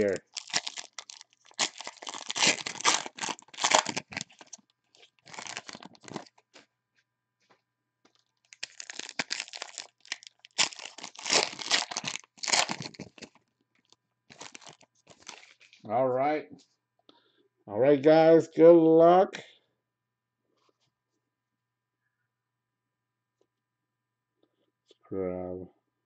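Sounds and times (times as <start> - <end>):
foil wrappers tearing and crinkling: 0.0 - 6.6, 8.4 - 15.8.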